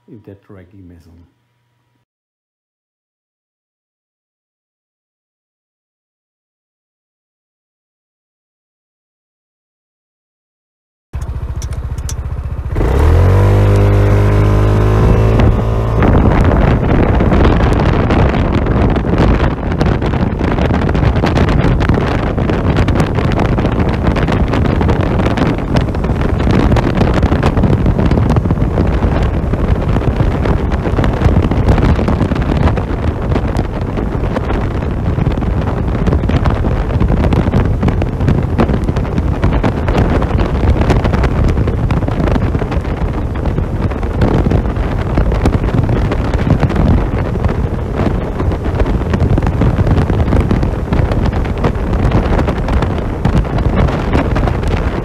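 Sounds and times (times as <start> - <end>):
scooter engine at full throttle: 11.2 - 55.0
wind buffeting on microphone: 11.2 - 55.0.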